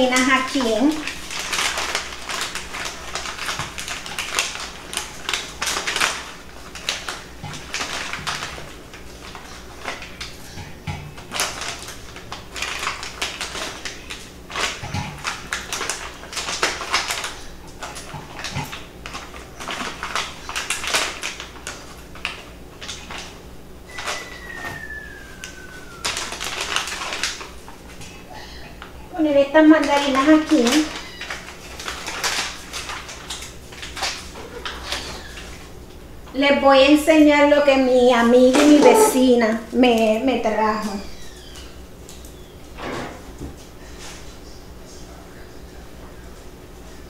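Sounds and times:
plastic bag crinkling: 0.0 - 10.5, 11.2 - 24.6, 25.2 - 28.2, 29.6 - 35.8
short falling whistle: 23.9 - 26.1.

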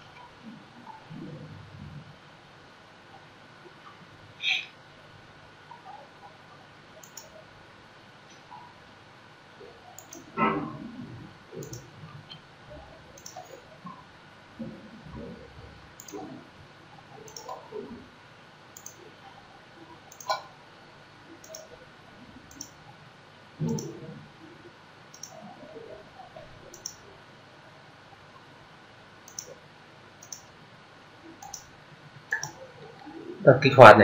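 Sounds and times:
computer mouse clicks: 7.0 - 7.4, 10.0 - 10.3, 11.6 - 11.9, 13.2 - 13.6, 16.0 - 16.2, 17.3 - 17.6, 18.8 - 19.0, 20.1 - 20.4, 21.4 - 21.7, 22.5 - 22.8, 23.6 - 24.0, 25.1 - 25.4, 26.7 - 27.0, 29.2 - 29.6, 30.2 - 30.5, 31.4 - 31.7, 32.3 - 32.6.

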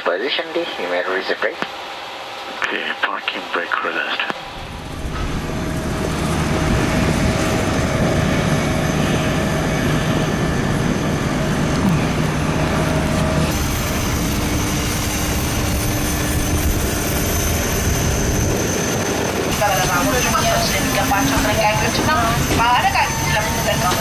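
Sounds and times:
cockpit rush and hum: 0.3 - 24.0
thin high whine: 11.0 - 24.0.

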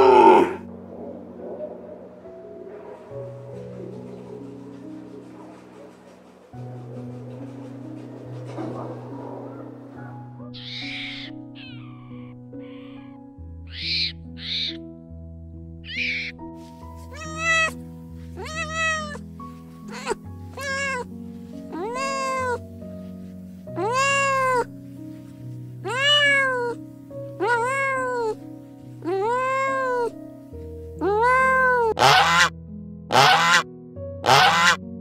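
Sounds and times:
background music: 0.0 - 35.0
cat meowing: 10.6 - 14.8, 15.9 - 16.4, 17.1 - 17.8, 18.4 - 19.2, 19.9 - 21.1, 21.7 - 22.6, 23.8 - 24.7, 25.8 - 26.8, 27.4 - 28.4, 29.0 - 30.2, 31.0 - 32.5.

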